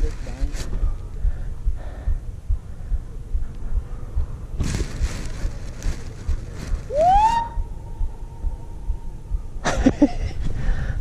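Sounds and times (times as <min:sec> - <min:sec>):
rustling: 0:00.0 - 0:00.9, 0:04.6 - 0:07.4.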